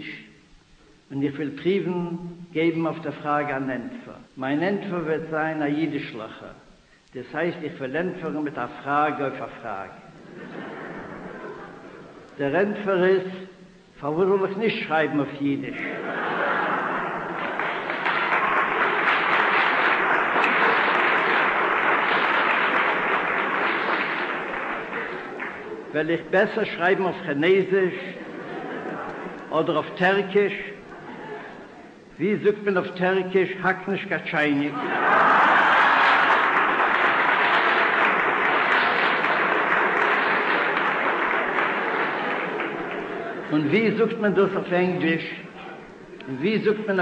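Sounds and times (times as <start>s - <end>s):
audience applauding: 16.0s - 26.3s, 34.8s - 44.0s.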